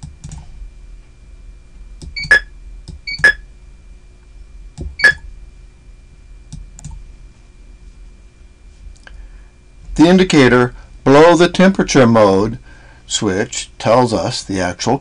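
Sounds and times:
electronic keypad beeps: 0:02.2 - 0:02.5, 0:03.1 - 0:03.4, 0:05.0 - 0:05.2.

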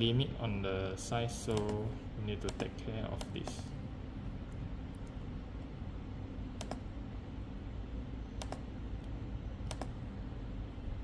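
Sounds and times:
low steady hum: 0:00.0 - 0:11.0
computer mouse clicks: 0:01.5 - 0:03.7, 0:06.6 - 0:06.9, 0:08.4 - 0:10.0.

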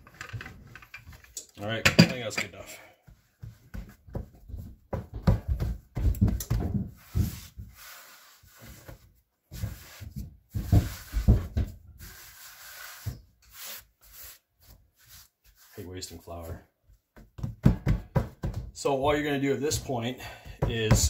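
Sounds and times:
hands rubbing and brushing dough: 0:07.0 - 0:17.1
hands thumping dough on wooden board: 0:17.1 - 0:18.8.

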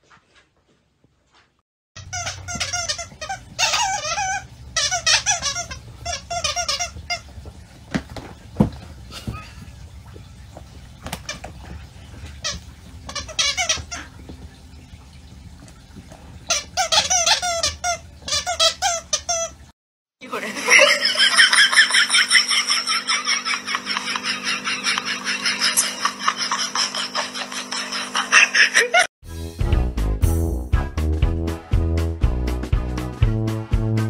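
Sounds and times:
squeaky toy squeaking: 0:02.0 - 0:07.3, 0:12.4 - 0:14.0, 0:16.5 - 0:19.6
music: 0:29.2 - 0:34.0.

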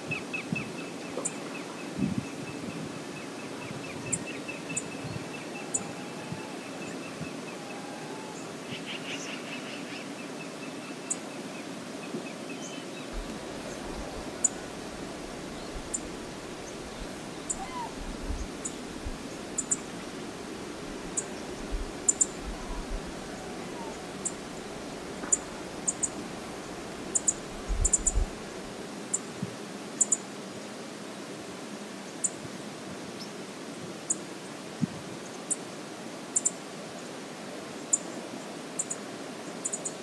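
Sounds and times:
river flowing: 0:04.3 - 0:32.0
high chirping bird calls: 0:16.9 - 0:18.8.

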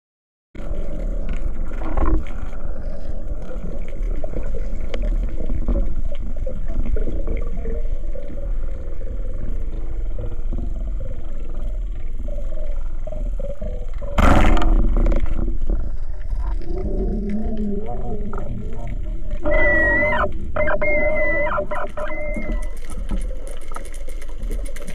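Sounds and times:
muffled underwater rumble: 0:00.6 - 0:24.9.

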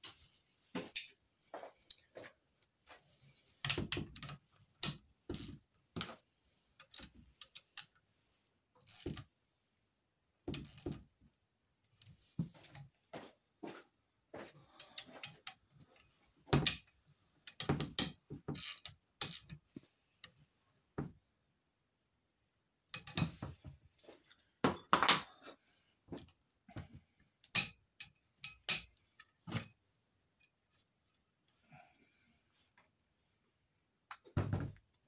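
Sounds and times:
metal parts clicking and clinking: 0:00.2 - 0:01.1, 0:06.8 - 0:08.0, 0:17.5 - 0:19.6, 0:22.9 - 0:23.4, 0:27.4 - 0:29.7.

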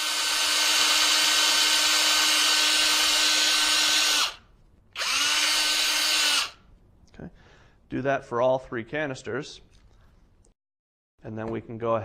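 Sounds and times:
electric drill whining: 0:00.0 - 0:06.6.

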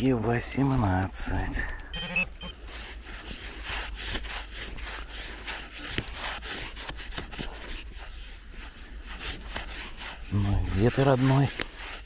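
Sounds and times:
tool scraping dry sand: 0:02.4 - 0:12.0.

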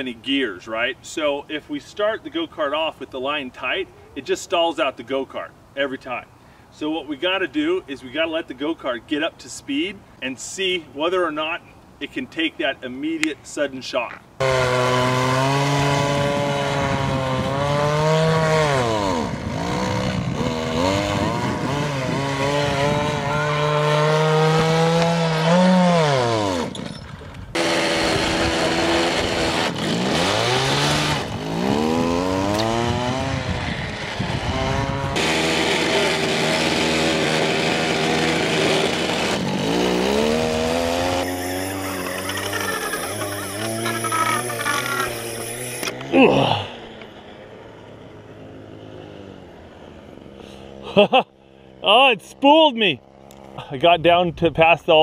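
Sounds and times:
go-kart engine revving: 0:14.4 - 0:26.9, 0:27.5 - 0:53.7.

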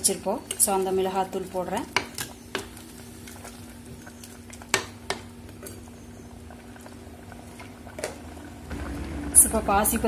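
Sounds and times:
low hum: 0:06.5 - 0:10.0.

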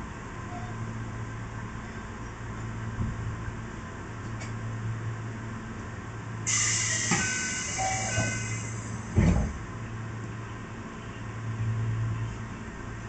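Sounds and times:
low hum of railcar: 0:00.0 - 0:13.0
train door air hiss: 0:06.5 - 0:09.6
heavy thud: 0:09.1 - 0:09.6.

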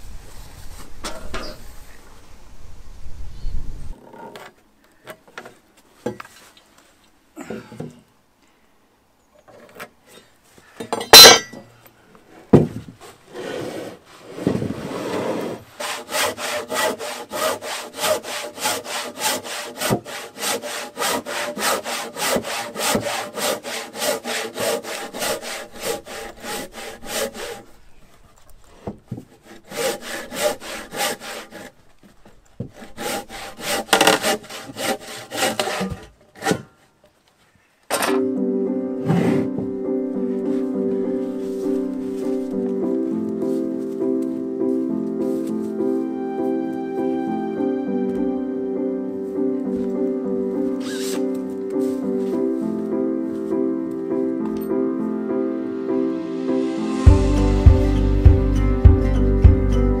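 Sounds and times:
hand saw cutting timber: 0:14.8 - 0:27.7, 0:29.1 - 0:36.9.

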